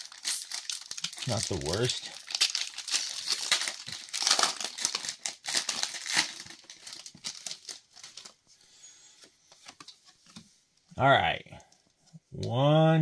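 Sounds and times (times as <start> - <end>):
wrapper crinkling and tearing: 0.0 - 8.4.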